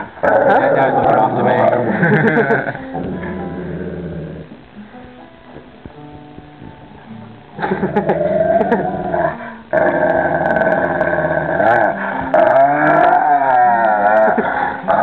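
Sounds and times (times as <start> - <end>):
dog growling: 0.2 - 4.6, 7.6 - 15.0.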